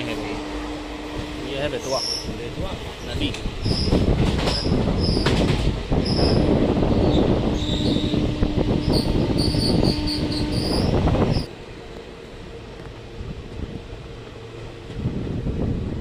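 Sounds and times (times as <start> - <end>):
train wheels rumbling on track: 0.0 - 16.0
faint steady squeal: 6.0 - 11.5.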